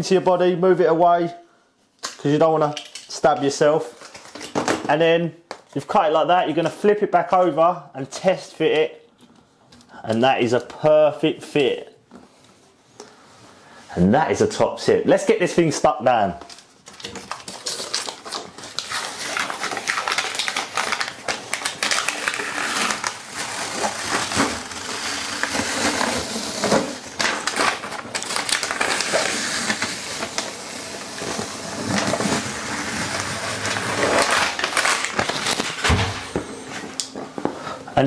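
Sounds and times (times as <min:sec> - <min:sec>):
paper peeling off vinyl tile: 0:16.5 - 0:35.9.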